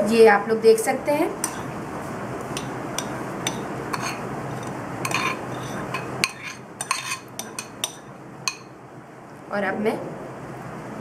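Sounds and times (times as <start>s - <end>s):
ceramic bowl clinking on metal: 2.6s - 8.7s.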